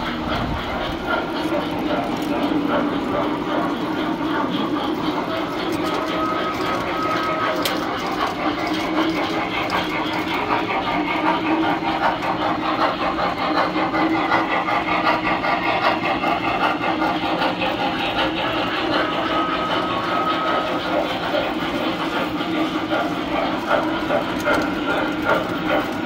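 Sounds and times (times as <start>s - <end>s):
toy train wheels clattering: 0.0s - 26.0s.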